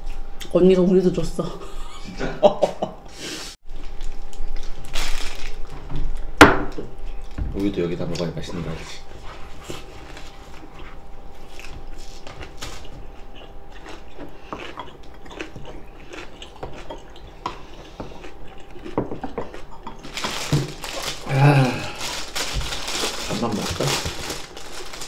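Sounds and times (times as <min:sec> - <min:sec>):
chewing: 0:10.5 - 0:21.3.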